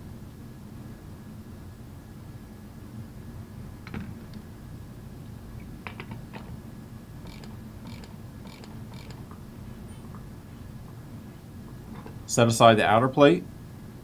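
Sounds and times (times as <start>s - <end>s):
hand ratchet clicking: 7.2s - 9.2s.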